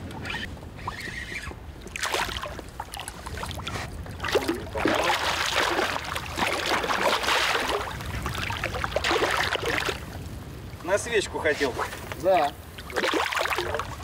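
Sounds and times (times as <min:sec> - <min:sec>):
fish splashing at the surface: 0:01.9 - 0:10.0, 0:12.8 - 0:14.0.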